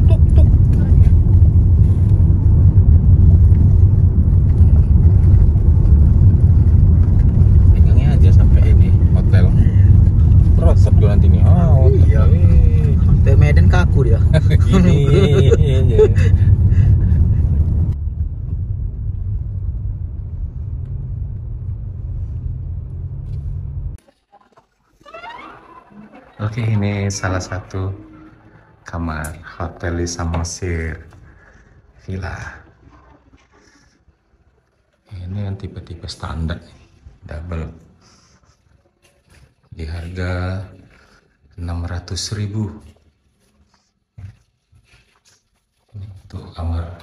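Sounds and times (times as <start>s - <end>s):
car engine and tyre rumble: 0.0s - 24.0s.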